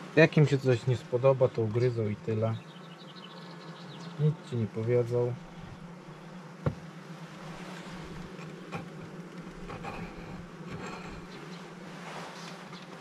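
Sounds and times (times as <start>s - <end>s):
honeybees buzzing: 0.0s - 13.0s.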